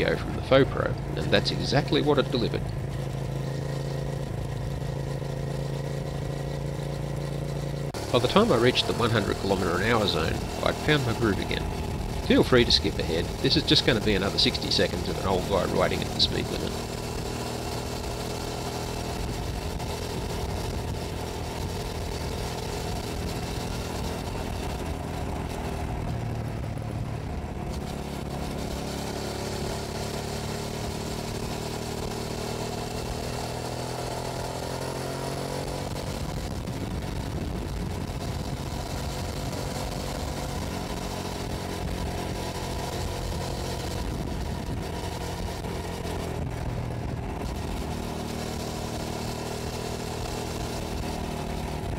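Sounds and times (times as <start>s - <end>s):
motorcycle engine running: 0.0s - 51.9s
wind rushing over microphone: 35.7s - 40.7s.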